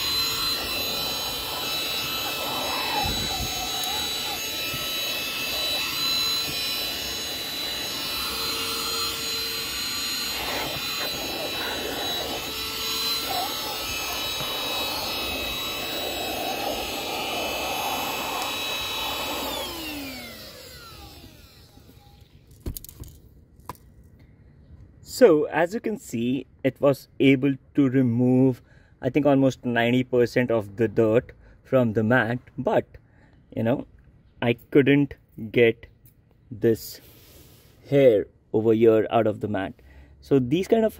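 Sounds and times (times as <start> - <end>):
handheld vacuum motor whine: 0.0 - 22.9.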